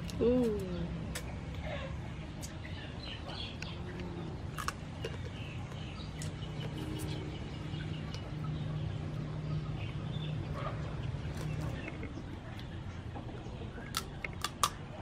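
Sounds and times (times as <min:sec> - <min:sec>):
small birds chirping: 0:00.0 - 0:14.8
steady low hum: 0:00.0 - 0:15.0
chickens clucking: 0:05.0 - 0:14.4.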